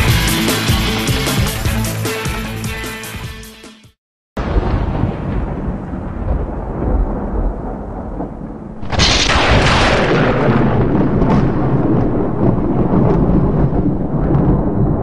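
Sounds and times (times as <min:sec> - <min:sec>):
thunder rumbling and cracking: 0:04.4 - 0:15.0.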